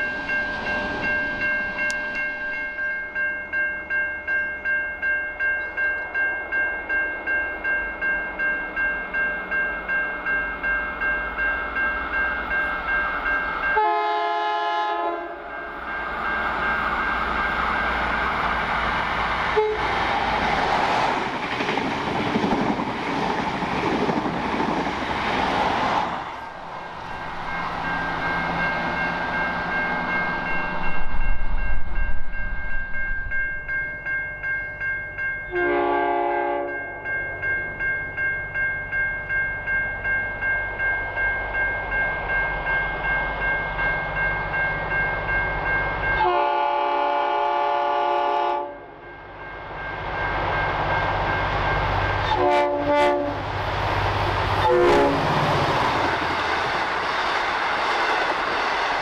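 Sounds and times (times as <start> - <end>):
train passing: 0.0 - 59.0
train horn: 13.7 - 15.6, 19.5 - 20.0, 35.5 - 36.8, 46.2 - 49.1, 52.2 - 53.5, 54.6 - 55.3.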